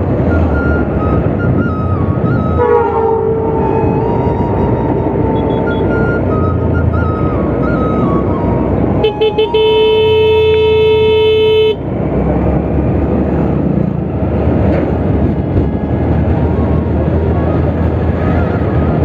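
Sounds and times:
wind and motorcycle road noise: 0.0 - 19.0
vehicle horn tooting: 9.0 - 11.8.

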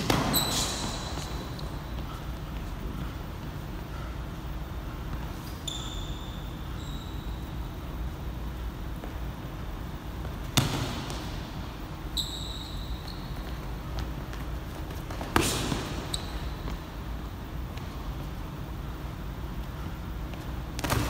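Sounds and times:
sneaker squeaks on floor: 0.0 - 2.3, 5.2 - 7.6, 12.0 - 14.5, 15.4 - 17.0.

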